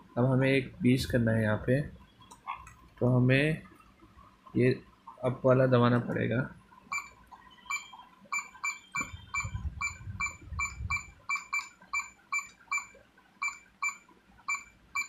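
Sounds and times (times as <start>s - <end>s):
short electronic clock beeps: 6.9s - 15.0s.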